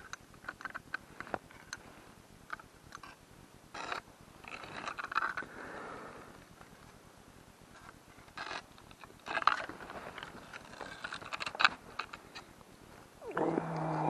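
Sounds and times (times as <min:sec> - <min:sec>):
ice scraping and crunching: 0:03.8 - 0:05.6, 0:07.7 - 0:12.5.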